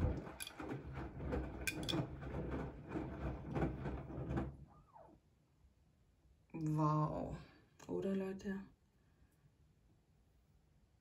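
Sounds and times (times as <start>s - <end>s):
washing machine running: 0.0s - 4.7s.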